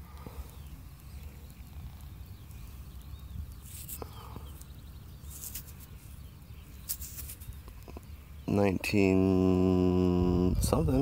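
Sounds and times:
wind rumble on microphone: 10.0s - 11.0s.

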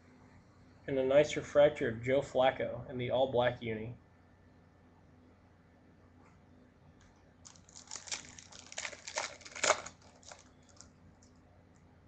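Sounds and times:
packaging crinkling: 7.4s - 11.3s.

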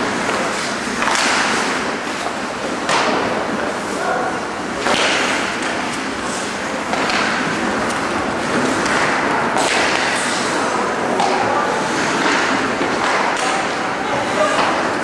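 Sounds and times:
knocks against rink boards: 0.2s - 1.8s, 2.8s - 3.4s, 4.8s - 5.8s, 6.9s - 10.4s, 12.2s - 13.8s, 14.4s - 14.9s.

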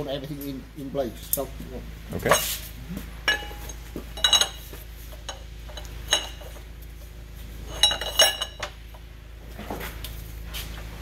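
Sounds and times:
metal pipe clinking on steel shaft: 3.3s - 6.6s, 7.7s - 8.8s.

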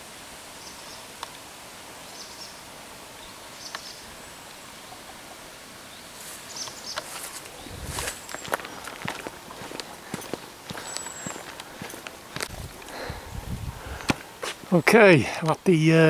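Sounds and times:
outdoor background hiss: 0.0s - 16.0s
footsteps on rough path: 6.2s - 15.8s.

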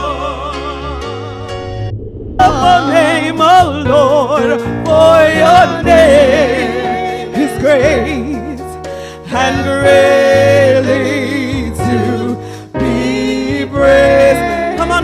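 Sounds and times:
woman singing: 2.4s - 8.6s.

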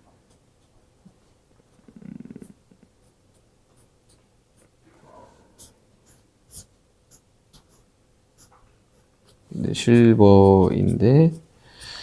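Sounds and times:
marker pen scratching on paper: 1.7s - 11.5s.

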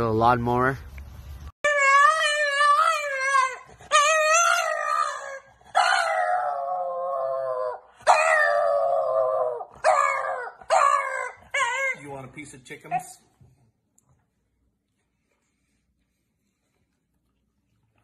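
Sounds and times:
dog howling and whining: 1.6s - 12.1s.

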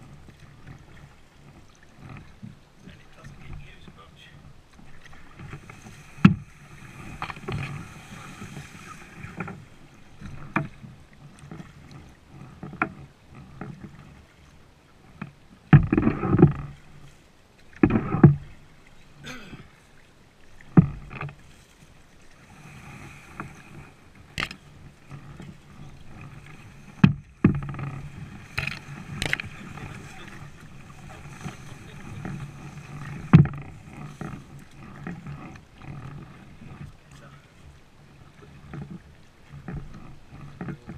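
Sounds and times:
reeds scraping along kayak hull: 0.0s - 40.9s
sharp knocks: 27.0s - 27.9s.

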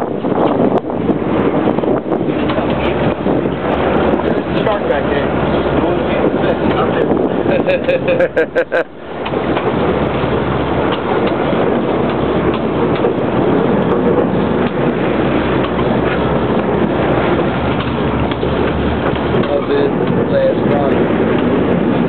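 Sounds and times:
boat engine running: 0.0s - 22.0s
wind on microphone: 0.0s - 22.0s.

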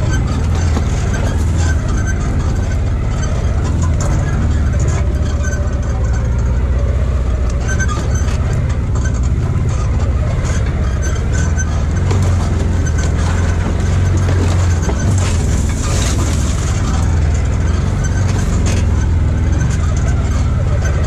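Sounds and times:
off-road vehicle engine running: 0.0s - 21.0s
clicks and knocks: 7.4s - 21.0s.

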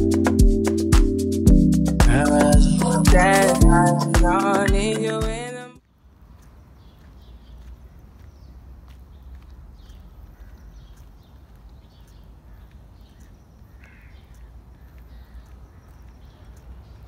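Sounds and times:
birds calling: 6.4s - 17.0s.

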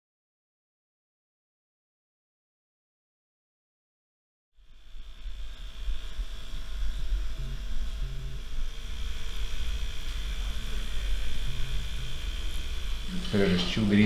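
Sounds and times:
tattoo machine humming: 4.6s - 14.0s.

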